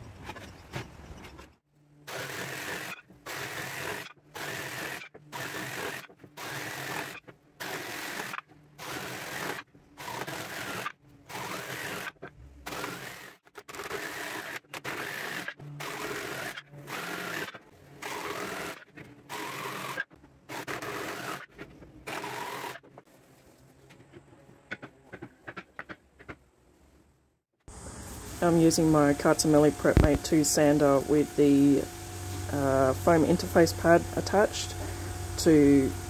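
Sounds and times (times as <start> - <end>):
jigsaw cutting timber: 2.0 - 22.9, 28.4 - 36.0.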